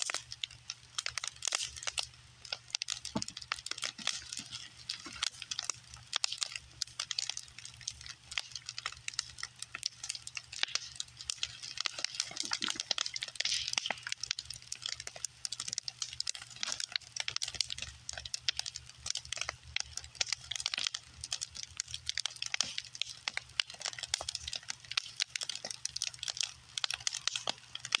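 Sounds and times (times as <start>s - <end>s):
wood fire crackling and popping: 0.0s - 28.0s.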